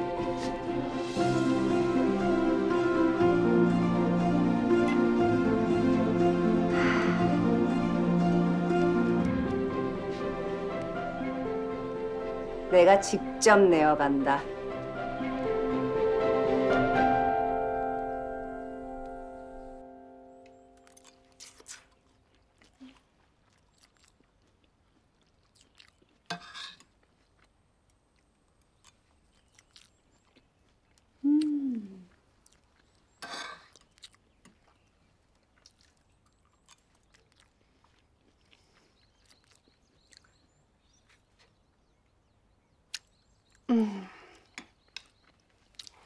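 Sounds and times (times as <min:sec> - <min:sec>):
slurping and lip-smacking: 0:20.9 - 0:26.9
woman humming appreciatively: 0:31.2 - 0:32.1, 0:43.7 - 0:44.4.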